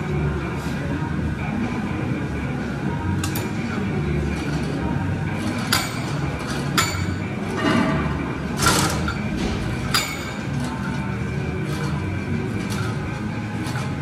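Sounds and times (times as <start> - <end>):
weight machine metal clinks: 5.6 - 7.3, 8.6 - 10.6.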